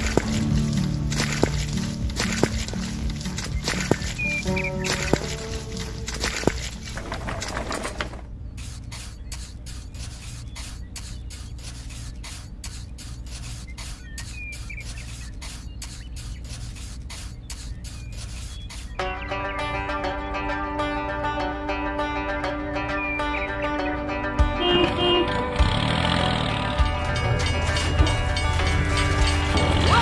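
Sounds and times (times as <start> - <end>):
trowel scraping wet concrete: 0.0 - 19.0.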